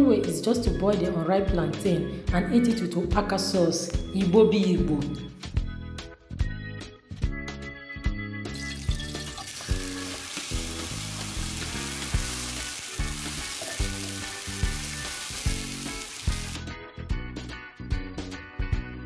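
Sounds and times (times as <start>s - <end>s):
pepper sizzling in hot oil: 8.5s - 16.6s
background music with a beat: 10.6s - 19.0s.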